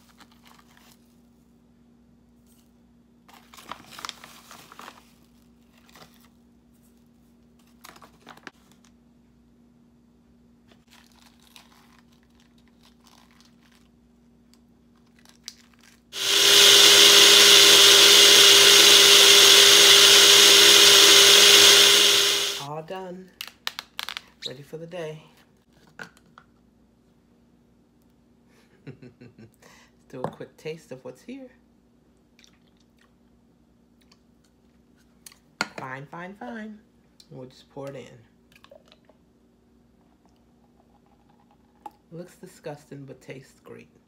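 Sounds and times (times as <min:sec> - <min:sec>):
blender running: 0:16.2 - 0:22.7.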